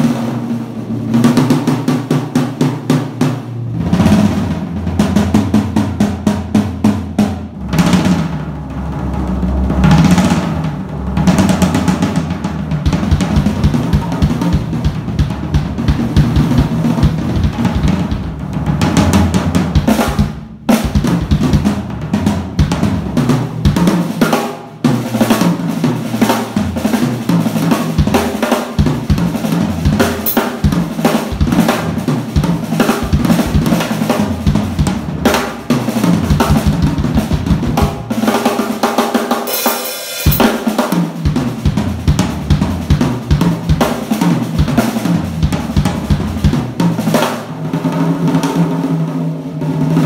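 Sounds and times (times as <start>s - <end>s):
drum kit groove: 0.0s - 50.0s
cymbals: 26.3s - 45.2s.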